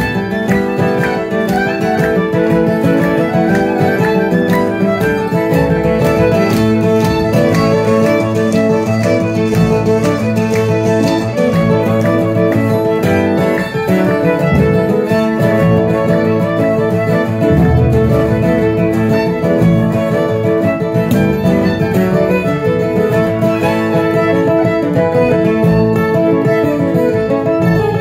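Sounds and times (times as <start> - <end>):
acoustic guitar: 0.0 - 28.0
fiddle melody: 0.0 - 28.0
plucked upright bass: 2.4 - 10.2, 14.4 - 24.1.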